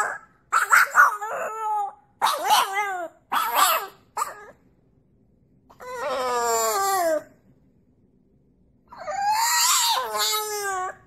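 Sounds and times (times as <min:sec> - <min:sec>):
dog howling: 0:00.0 - 0:04.6, 0:05.7 - 0:07.3, 0:08.9 - 0:11.0.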